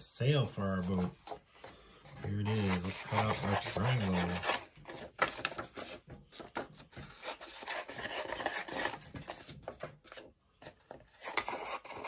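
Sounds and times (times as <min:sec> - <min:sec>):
paper rustling: 0:02.2 - 0:12.0
scissors cutting paper: 0:02.3 - 0:10.3, 0:11.0 - 0:12.0.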